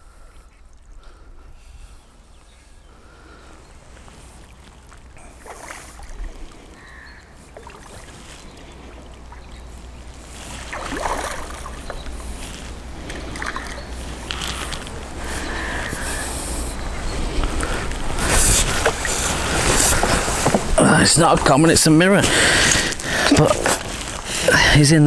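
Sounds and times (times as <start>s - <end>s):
fish splashing at the surface: 4.7s - 6.7s, 10.5s - 12.0s
low wind rumble on microphone: 6.0s - 21.5s.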